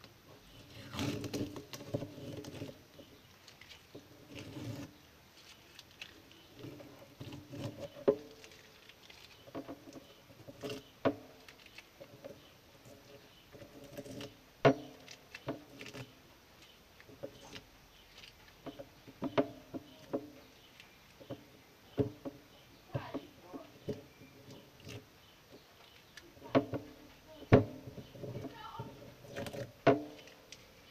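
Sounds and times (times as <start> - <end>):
hands tapping and scraping metal: 0.0 - 30.9.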